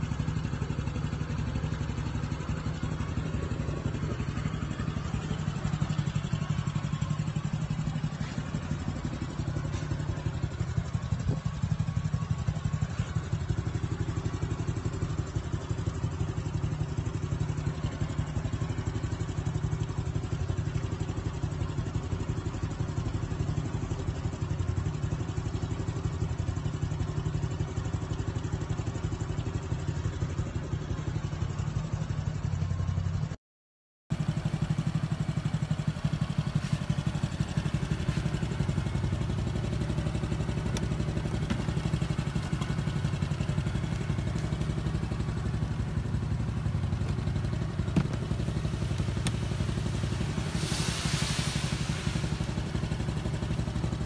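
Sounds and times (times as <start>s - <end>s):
motorcycle engine idling: 0.0s - 33.4s, 34.1s - 54.0s
brief hiss: 34.5s - 54.0s.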